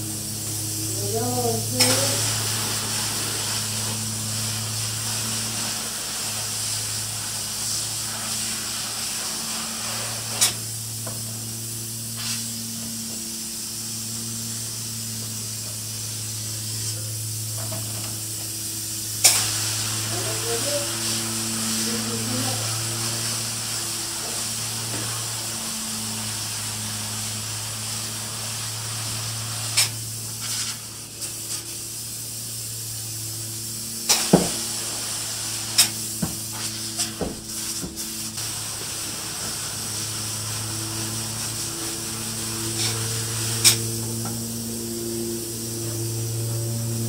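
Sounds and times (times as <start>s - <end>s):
low hum: 0.0s - 7.3s, 39.0s - 47.0s
spray foam gun hissing: 0.0s - 47.0s.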